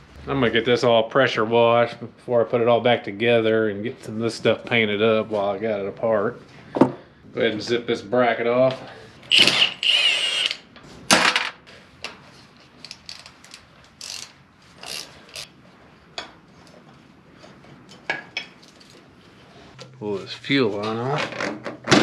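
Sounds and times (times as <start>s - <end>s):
powered ratchet whirring: 9.3s - 10.6s.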